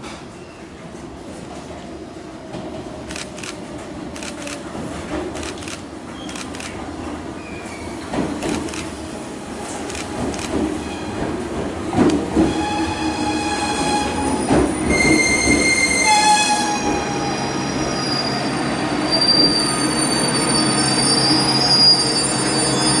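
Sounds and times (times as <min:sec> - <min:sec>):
train wheels rumbling on rail: 0:00.0 - 0:23.0
high brake squeals: 0:14.0 - 0:23.0.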